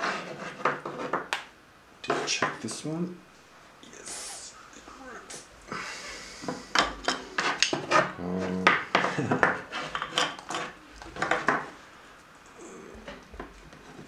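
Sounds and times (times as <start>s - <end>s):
wooden rods knocking together: 6.4s - 11.7s.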